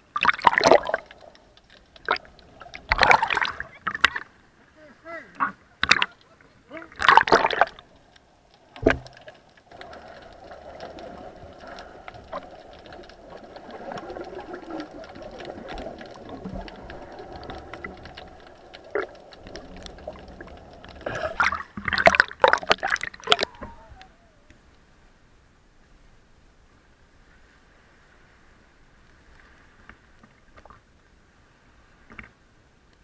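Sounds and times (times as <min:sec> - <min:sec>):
muffled underwater wash: 0:00.0 - 0:33.0
faint clicks: 0:00.6 - 0:04.2, 0:05.3 - 0:24.8
loud water splashing: 0:02.1 - 0:04.2, 0:06.8 - 0:07.8, 0:09.8 - 0:24.0.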